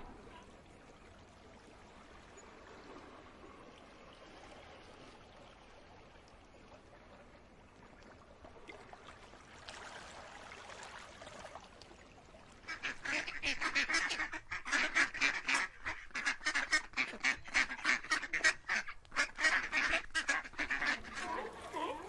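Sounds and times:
duck quacking: 0:12.7 - 0:22.0.

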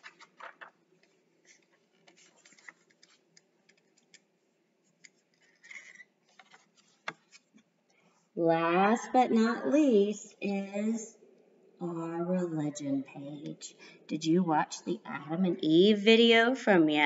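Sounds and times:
paper handling noises: 0:00.0 - 0:07.7.

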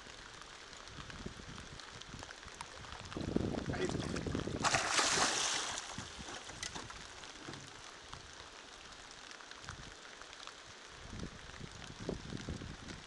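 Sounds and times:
water noise: 0:00.0 - 0:13.0
fish splashing: 0:03.9 - 0:07.4.

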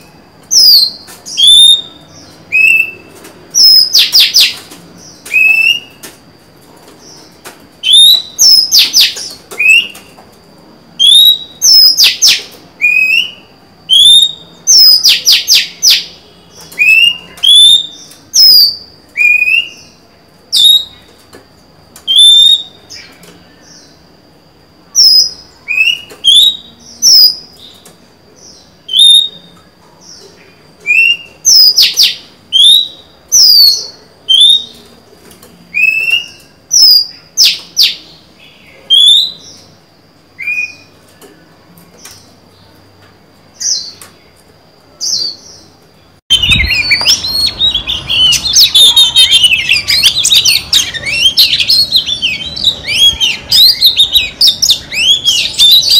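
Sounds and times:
rapid warbling birdsong: 0:45.0 - 0:55.9
bird whistled notes: 0:46.3 - 0:55.9.

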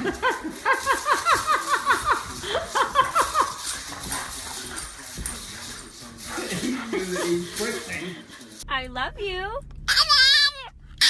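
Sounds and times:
dog yipping: 0:09.9 - 0:10.7.

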